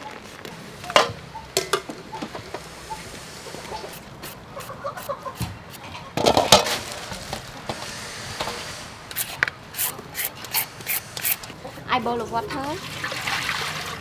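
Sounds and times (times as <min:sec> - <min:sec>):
peeler scraping vegetables: 0:03.5 - 0:05.9, 0:07.7 - 0:11.8.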